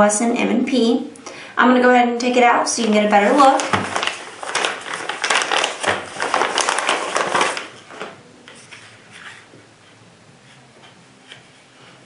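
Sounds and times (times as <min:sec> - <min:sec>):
plastic bag crinkling: 0:02.7 - 0:09.4.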